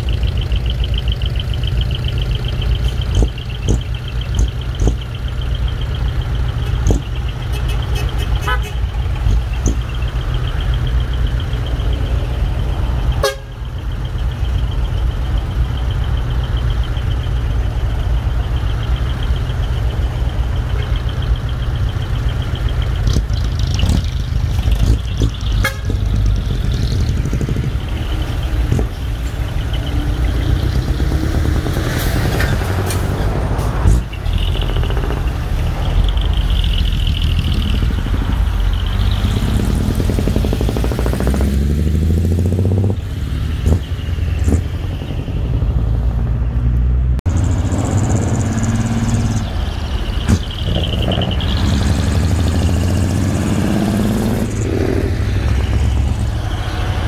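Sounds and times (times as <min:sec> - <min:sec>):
diesel truck exhaust rumble: 0:00.0 - 0:57.0
high horn-like tone: 0:13.2 - 0:13.6, 0:25.6 - 0:26.1.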